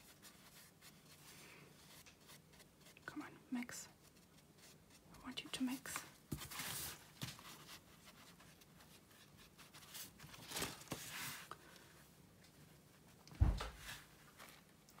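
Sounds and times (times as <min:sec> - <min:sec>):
paper rustling: 0:06.0 - 0:11.9
soft thump: 0:13.4 - 0:13.8.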